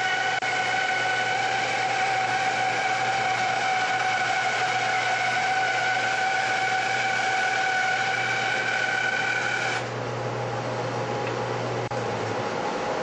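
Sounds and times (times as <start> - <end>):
bandsaw blade whine: 0.0 - 9.9
bandsaw humming: 0.0 - 9.9.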